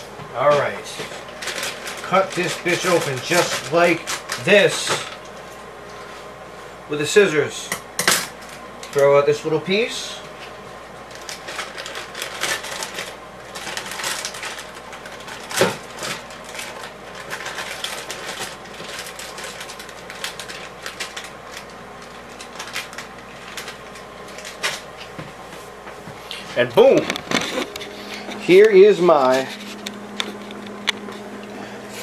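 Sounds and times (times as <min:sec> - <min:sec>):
plastic bag crinkling: 0:00.4 - 0:05.4, 0:11.0 - 0:25.2, 0:26.4 - 0:32.0.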